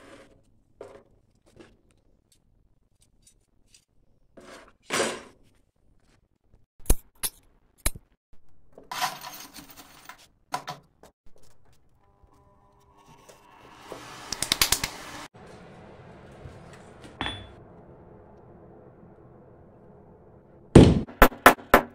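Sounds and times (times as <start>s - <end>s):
steel bar scraping: 12.2s - 15.0s.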